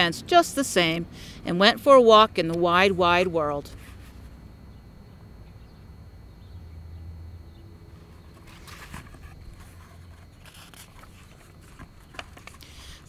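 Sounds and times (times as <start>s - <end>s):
book pages turning: 8.0s - 13.0s
soft paper rustles: 8.0s - 13.0s.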